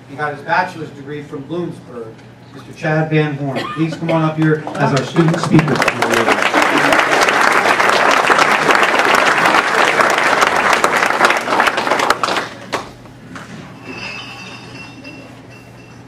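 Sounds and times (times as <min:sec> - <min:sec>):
audience applauding: 0:04.6 - 0:12.9.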